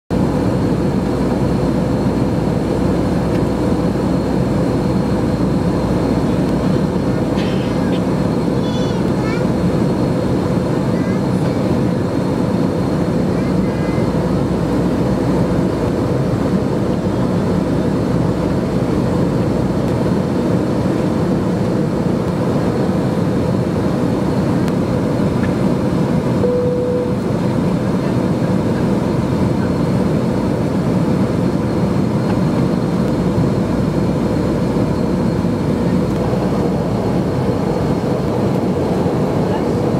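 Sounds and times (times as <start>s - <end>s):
jet cabin engine and airflow noise: 0.1s - 39.9s
single electronic tone: 26.4s - 27.3s.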